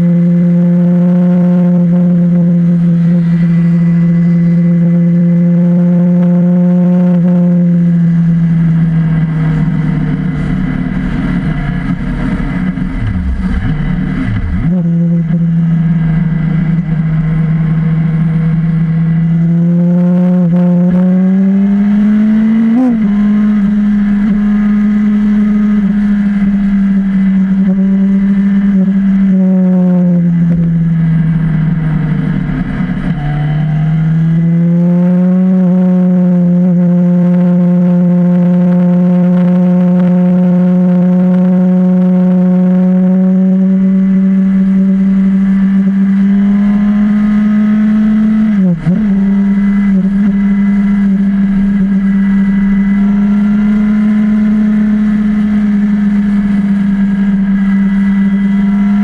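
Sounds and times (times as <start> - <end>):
motorcycle engine droning: 0.0 - 59.0
wind and road noise: 0.0 - 59.0.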